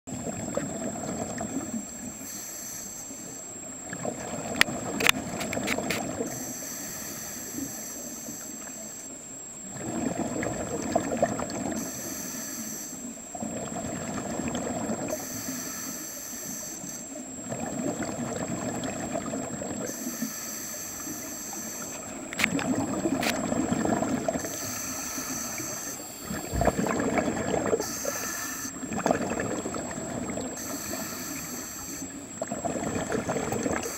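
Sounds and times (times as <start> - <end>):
exhaled bubbles gurgling underwater: 0.1 - 33.9
faint high whine: 0.1 - 33.9
regulator inhalation hiss: 2.2 - 3.5, 6.2 - 9.2, 11.8 - 13.2, 15.1 - 17.2, 19.9 - 22.2, 24.4 - 26.9, 27.8 - 28.9, 30.6 - 32.3.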